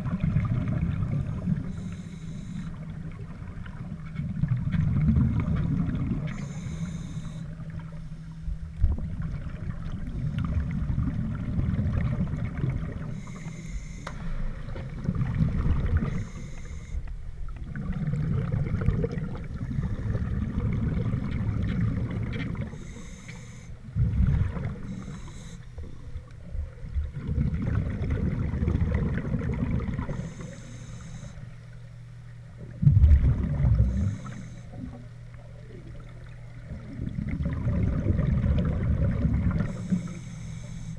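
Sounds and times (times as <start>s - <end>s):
exhaled bubbles rumbling: 0.0s - 2.0s, 2.7s - 13.4s, 14.2s - 23.1s, 23.8s - 40.2s
regulator hissing inhale: 1.4s - 2.9s, 6.2s - 8.4s, 13.0s - 14.7s, 16.0s - 17.1s, 19.6s - 20.2s, 22.6s - 23.9s, 24.8s - 26.3s, 30.0s - 31.7s, 33.7s - 35.0s, 39.6s - 40.9s.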